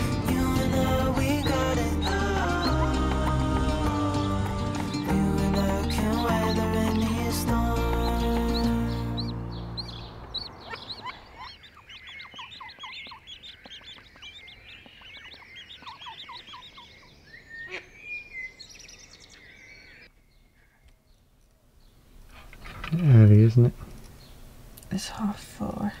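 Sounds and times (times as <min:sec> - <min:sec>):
ducklings peeping: 0:00.0 - 0:20.1.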